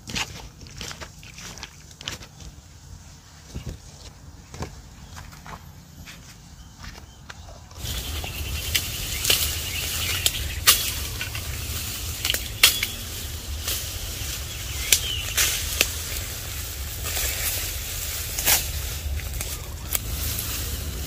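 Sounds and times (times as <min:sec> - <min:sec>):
sharp stalk cracks: 0:07.8 - 0:20.7
grass stalks rustling and snapping: 0:07.8 - 0:21.0
low steady rumble: 0:07.8 - 0:21.0.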